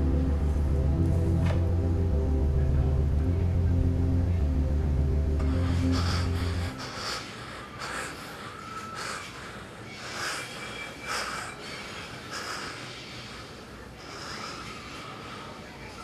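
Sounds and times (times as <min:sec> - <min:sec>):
man breathing heavily: 0:05.4 - 0:16.0.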